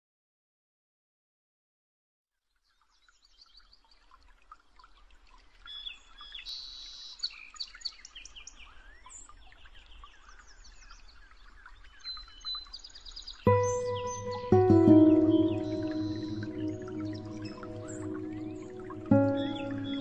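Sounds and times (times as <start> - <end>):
songbirds chirping: 5.6 - 20.0.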